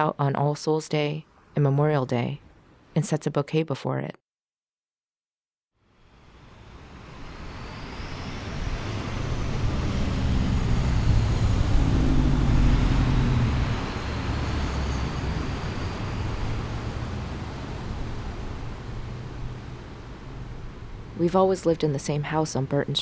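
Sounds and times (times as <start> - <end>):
low rumbling vehicle noise: 5.9 - 22.3.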